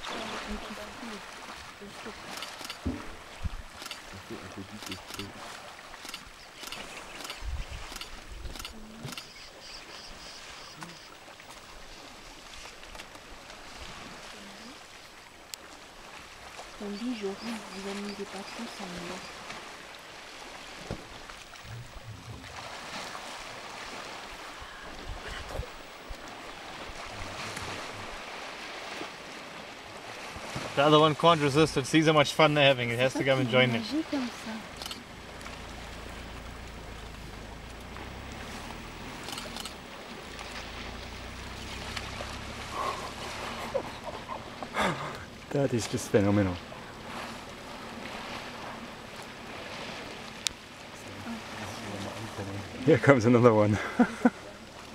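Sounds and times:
elephants splashing in water: 0:00.0 - 0:54.9
wind: 0:00.0 - 0:54.9
knock: 0:02.8 - 0:03.1.

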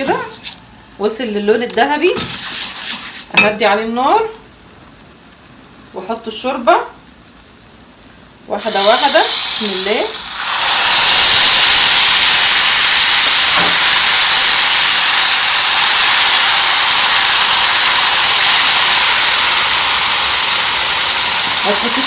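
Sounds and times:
broth hissing in a hot pot: 0:07.3 - 0:22.0.

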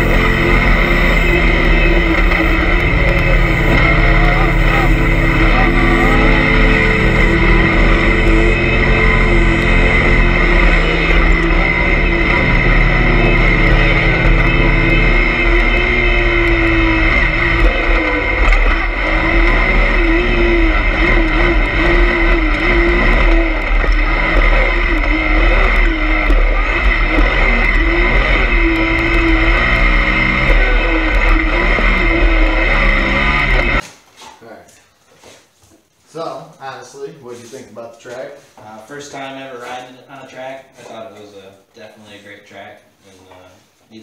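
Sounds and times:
engine revving: 0:00.0 - 0:33.8.

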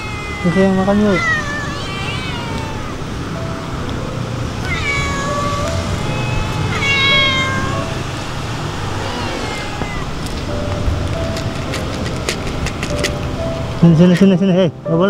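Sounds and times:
cats meowing: 0:00.0 - 0:03.4, 0:04.4 - 0:10.6.

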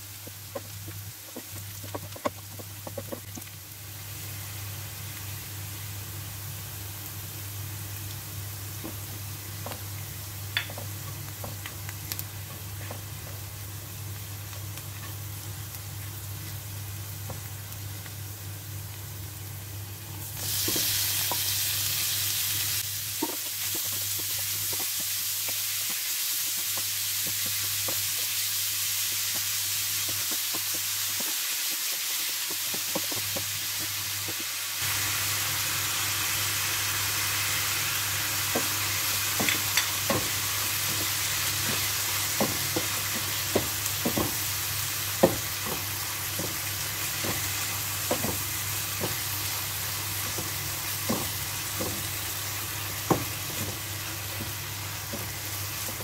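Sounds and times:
meat sizzling in a frying pan: 0:00.0 - 0:56.0
wooden spatula scraping a pan: 0:00.2 - 0:03.3.

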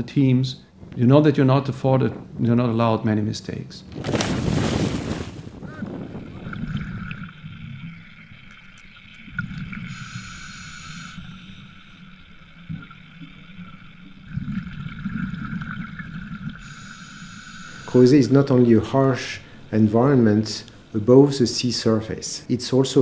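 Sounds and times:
rumbling regulator bubbles: 0:03.8 - 0:16.9
loud splash into water: 0:03.9 - 0:06.5
steady high hum: 0:05.6 - 0:23.0.

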